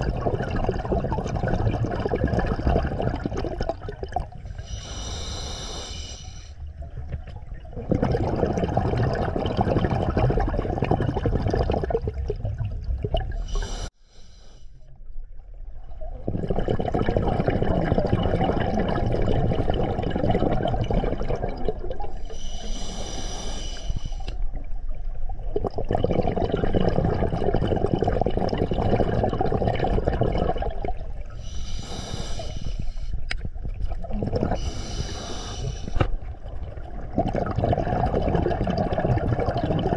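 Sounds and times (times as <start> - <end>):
exhaled bubbles rushing: 0.0 - 4.6, 6.8 - 13.6, 15.5 - 22.2, 24.5 - 31.4, 33.4 - 34.8, 35.9 - 39.9
regulator hissing inhale: 4.6 - 6.6, 13.4 - 14.8, 22.1 - 24.4, 31.4 - 33.3, 34.6 - 36.1.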